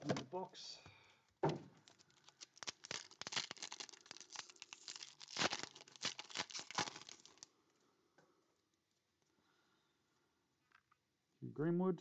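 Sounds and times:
foil wrapper tearing and crinkling: 0:01.8 - 0:07.5.

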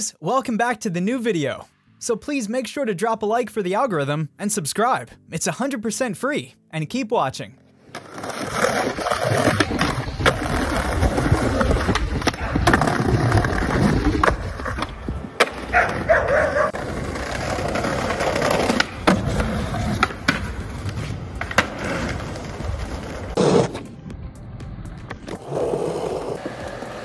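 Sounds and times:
skateboards rolling on pavement: 0:07.8 - 0:24.0, 0:24.9 - 0:27.0
skateboard grinding on stone ledge: 0:07.9 - 0:16.1, 0:16.7 - 0:20.6, 0:21.5 - 0:23.8, 0:25.3 - 0:27.0
skateboard pops and landings: 0:18.6 - 0:23.9.

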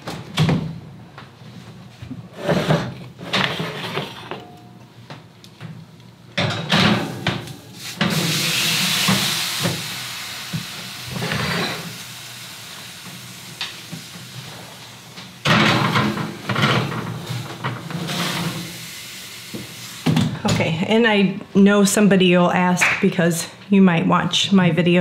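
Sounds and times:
metal baking trays knocking and scraping: 0:06.4 - 0:08.2, 0:15.4 - 0:18.4
rushing hiss: 0:07.8 - 0:15.2.

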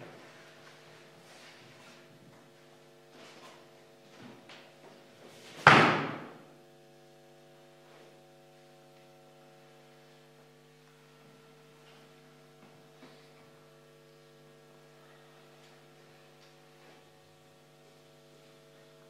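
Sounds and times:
steady hum: 0:00.0 - 0:19.0
loud slam: 0:05.6 - 0:06.4.

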